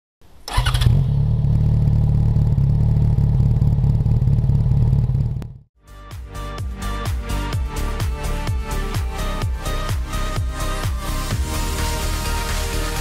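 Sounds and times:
motorcycle engine running: 0.5s - 5.7s.

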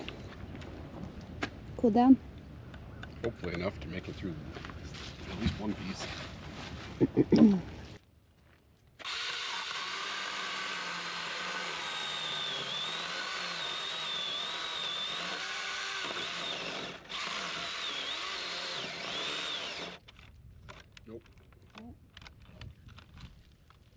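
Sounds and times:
power saw cutting wood: 9.0s - 20.0s.

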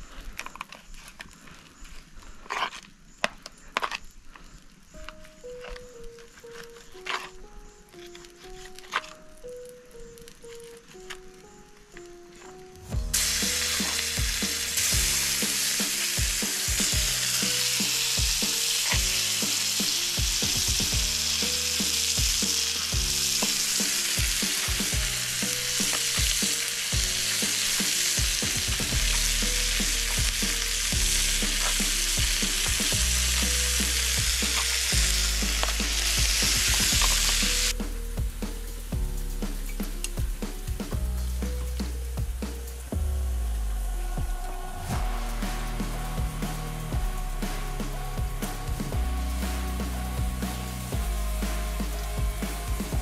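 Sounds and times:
meat sizzling in a pan: 13.0s - 37.8s, 45.0s - 53.0s.

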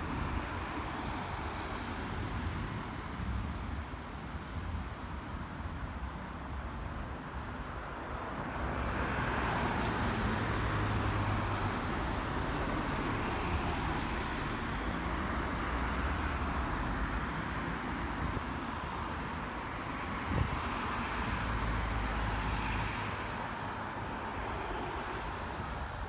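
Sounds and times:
cars driving past: 8.4s - 26.0s.

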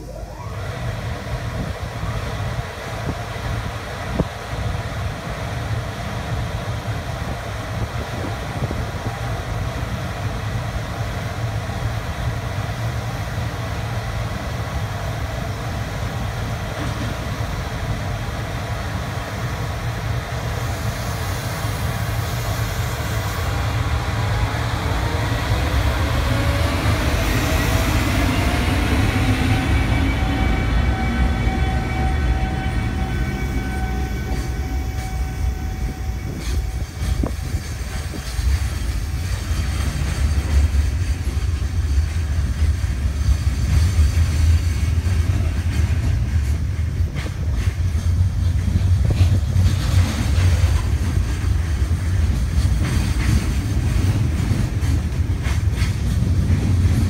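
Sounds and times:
electric locomotive humming: 0.0s - 57.0s
traction motor whine: 23.5s - 37.5s.

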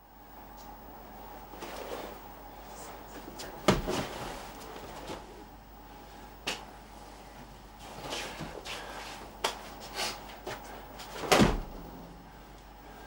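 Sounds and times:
bare feet shuffling on a mat: 2.8s - 5.4s.

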